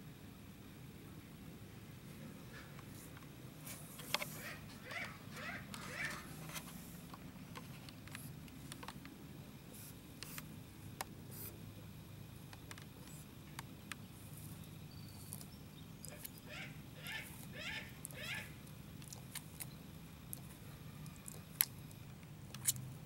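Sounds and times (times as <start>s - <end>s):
tortoise chewing with crunches: 12.4s - 23.0s.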